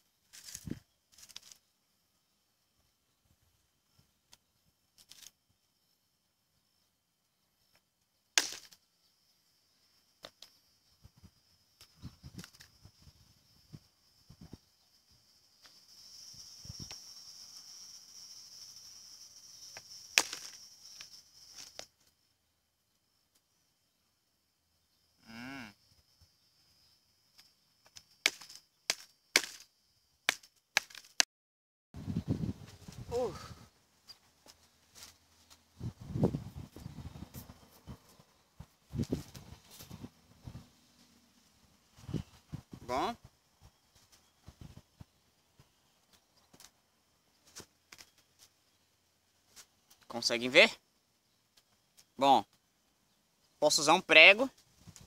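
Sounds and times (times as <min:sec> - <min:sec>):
stones clicking and knocking: 0:00.3 - 0:01.6, 0:05.0 - 0:05.4, 0:08.4 - 0:08.8, 0:10.2 - 0:10.6, 0:11.8 - 0:12.8, 0:19.7 - 0:22.1, 0:27.4 - 0:29.7, 0:30.3 - 0:31.3, 0:47.5 - 0:48.5
hammerstone striking flint: 0:08.4 - 0:08.8, 0:19.8 - 0:21.9, 0:27.8 - 0:29.7.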